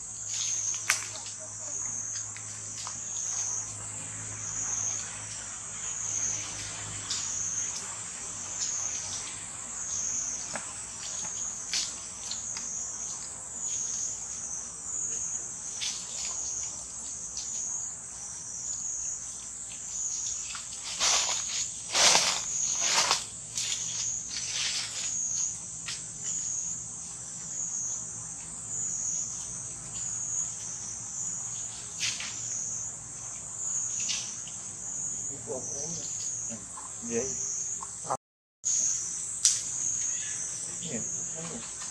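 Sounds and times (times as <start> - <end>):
high-pitched insect chorus: 0.0 - 41.9.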